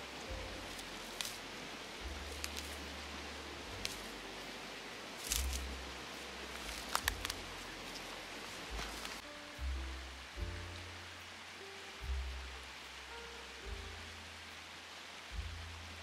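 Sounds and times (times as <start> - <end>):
dry fronds and grass rustling: 0.0 - 15.4
short crisp snaps: 6.6 - 8.1.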